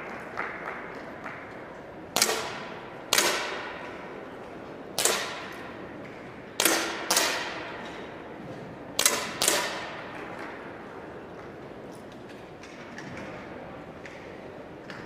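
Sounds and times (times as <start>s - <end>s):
air pistol shots echoing: 2.1s - 4.0s, 5.0s - 5.7s, 6.6s - 7.9s, 9.0s - 10.1s.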